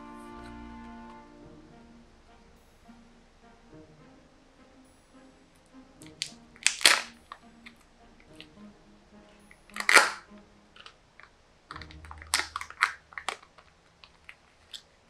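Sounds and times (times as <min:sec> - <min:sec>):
plastic clicks and snaps: 0:06.0 - 0:07.4, 0:09.7 - 0:10.2, 0:10.8 - 0:14.9
plastic capsule being handled: 0:06.0 - 0:08.5, 0:09.7 - 0:10.2, 0:10.8 - 0:14.9
sharp plastic crackle: 0:06.1 - 0:07.2, 0:09.7 - 0:10.2, 0:11.7 - 0:14.9.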